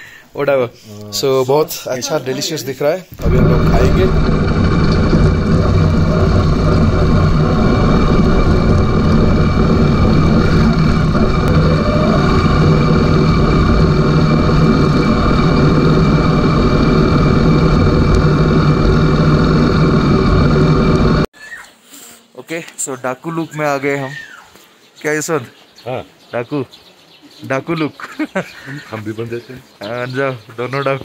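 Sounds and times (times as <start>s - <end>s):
motorcycle engine running: 3.2s - 21.3s.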